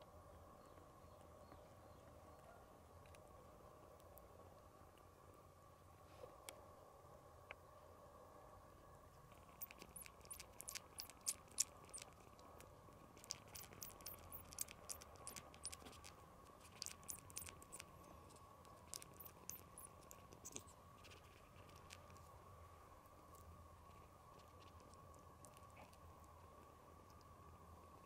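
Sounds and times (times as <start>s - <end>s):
kitten suckling wet clicks: 9.3s - 22.2s.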